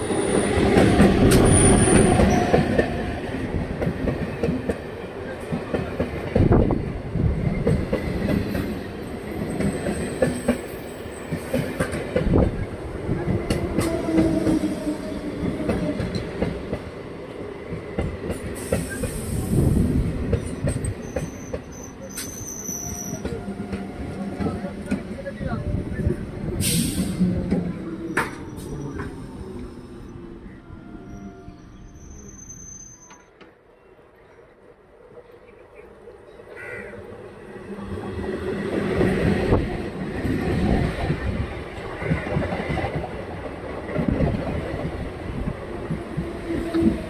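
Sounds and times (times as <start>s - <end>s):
train passing close by: 0.0s - 47.0s
thin wheel squeals: 31.0s - 33.3s.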